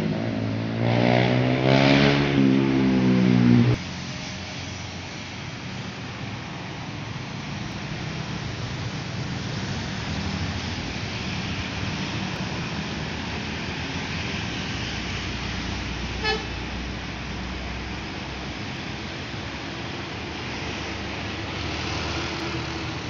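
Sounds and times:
road traffic passing: 0.0s - 23.0s
coach diesel engine: 3.1s - 23.0s
short horn toot: 16.2s - 16.6s.

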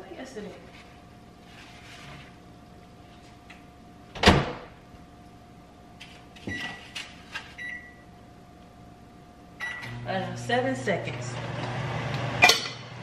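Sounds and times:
door thud shutting: 4.2s - 4.7s
microwave keypad beeps: 7.6s - 8.0s, 9.6s - 9.9s.

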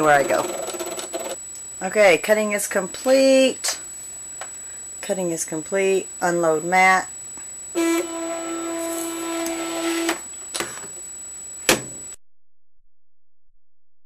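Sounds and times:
cutting machine motor humming: 7.8s - 10.2s.

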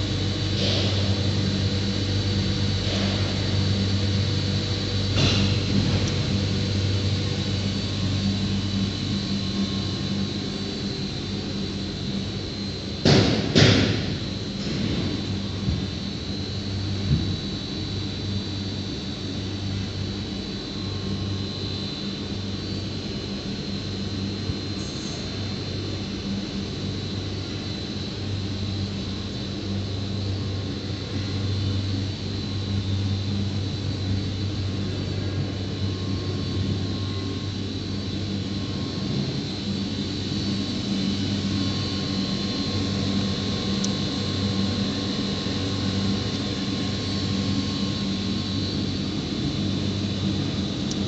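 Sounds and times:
machine hum: 0.0s - 51.0s.

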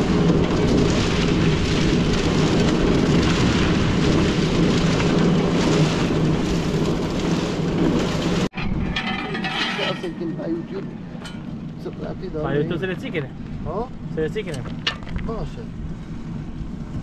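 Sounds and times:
concrete mixer churning: 0.0s - 11.9s.

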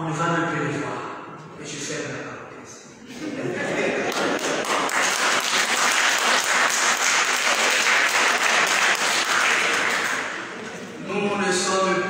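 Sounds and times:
congregation applauding: 4.0s - 10.8s.

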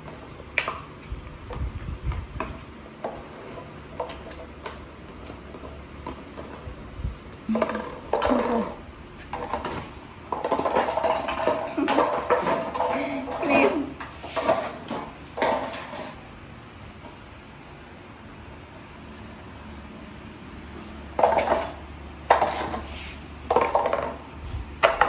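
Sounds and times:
toy clattering on tile floor: 7.4s - 17.6s, 21.1s - 25.0s.

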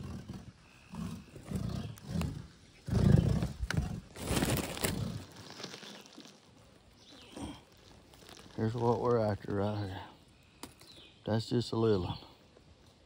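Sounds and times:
stake rubbed groaning: 0.0s - 6.4s, 7.2s - 10.1s.

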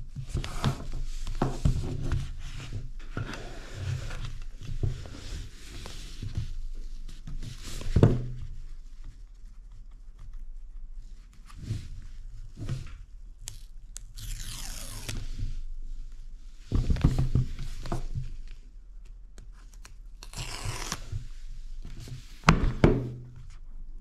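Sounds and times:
paper seal ripping: 13.4s - 15.2s, 19.7s - 21.1s.

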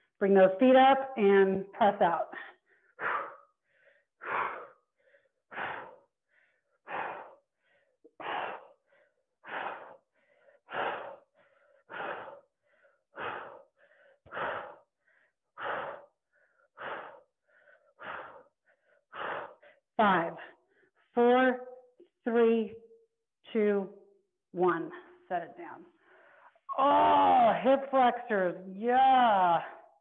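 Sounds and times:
woman breathing heavily: 2.2s - 21.1s, 25.9s - 26.7s.

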